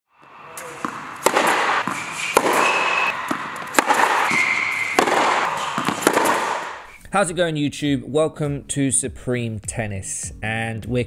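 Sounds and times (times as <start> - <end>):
high shoe squeaks: 0.2 - 7.0
tennis ball hits and bounces: 0.2 - 7.0.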